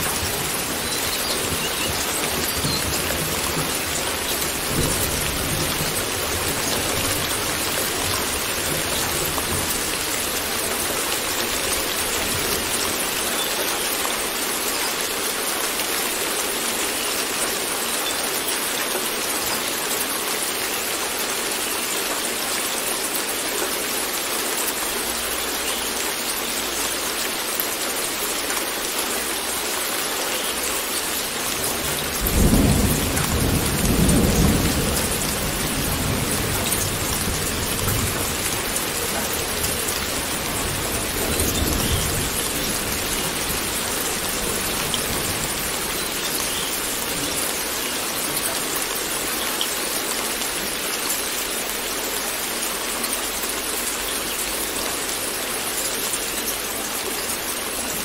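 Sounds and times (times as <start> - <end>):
rain pattering: 0.0 - 58.0
thunder rumbling: 31.7 - 47.8.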